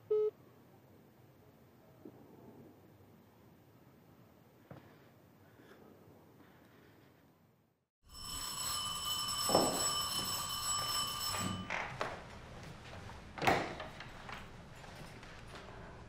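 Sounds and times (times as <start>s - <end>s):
electric doorbell ringing: 8.1s - 11.8s
knocks and clacks at door: 9.3s - 12.2s.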